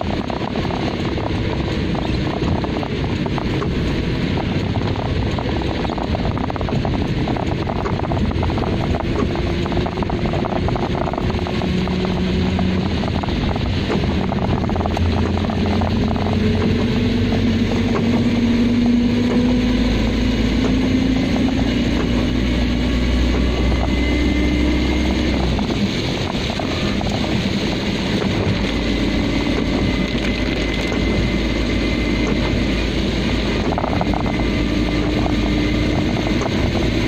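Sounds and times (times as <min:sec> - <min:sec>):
car engine: 0:00.0 - 0:37.0
tyres and rain rushing: 0:00.0 - 0:37.0.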